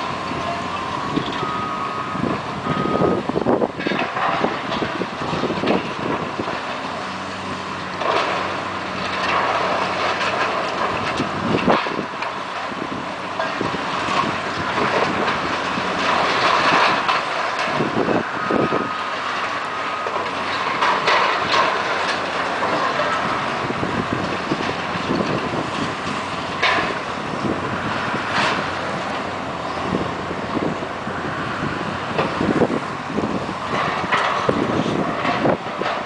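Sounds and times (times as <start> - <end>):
crashing debris and scraping metal: 3.3 - 30.8.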